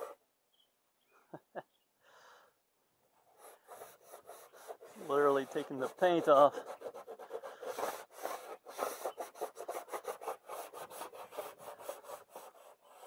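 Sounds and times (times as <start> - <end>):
paper towel scrubbing painted metal: 3.3 - 13.0.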